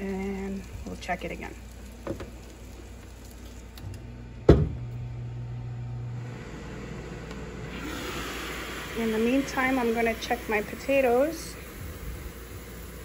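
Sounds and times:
grill humming: 0:00.0 - 0:13.0
grill lid thud: 0:04.4 - 0:04.9.

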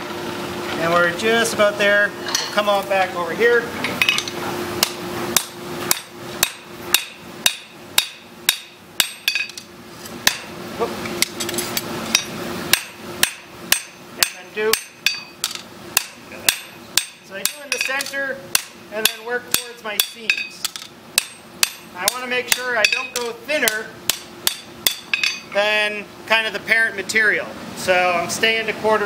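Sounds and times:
hammer striking hot metal on anvil: 0:04.0 - 0:09.6, 0:10.2 - 0:10.5, 0:11.2 - 0:25.5.

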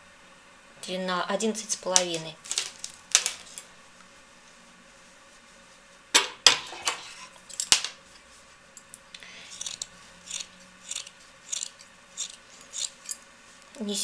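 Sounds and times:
metallic scissors clicks: 0:09.5 - 0:13.2
scissors snipping: 0:09.6 - 0:13.0.

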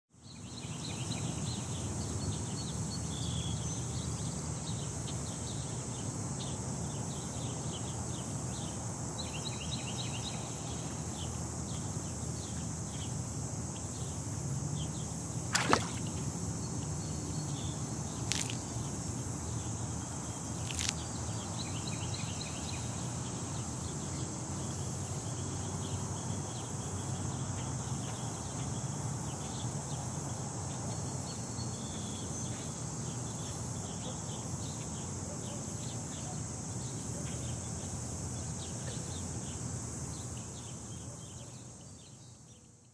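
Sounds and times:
insect chorus: 0:00.2 - 0:42.9.

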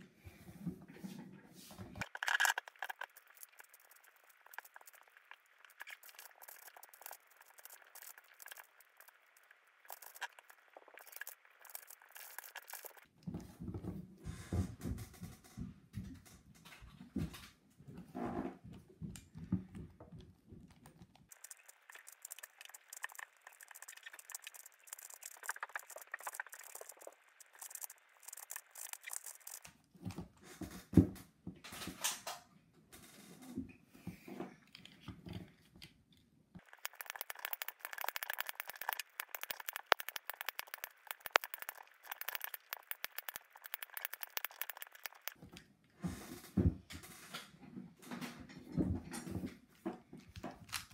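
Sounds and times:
puzzle cube clicking: 0:36.6 - 0:45.4.

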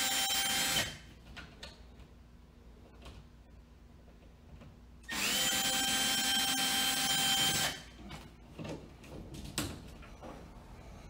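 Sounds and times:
drill motor whine: 0:00.0 - 0:00.9, 0:05.1 - 0:07.8.

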